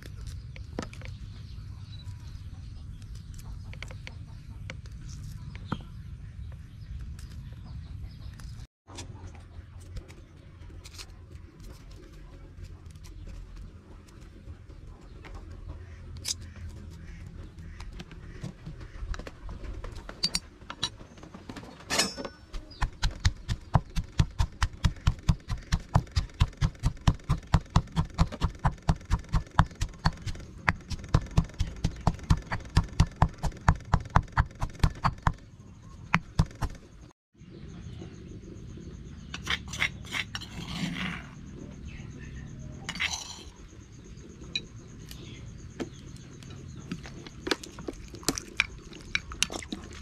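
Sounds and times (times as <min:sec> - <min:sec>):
pestle pounding in stone mortar: 0:22.5 - 0:35.4, 0:36.2 - 0:36.8.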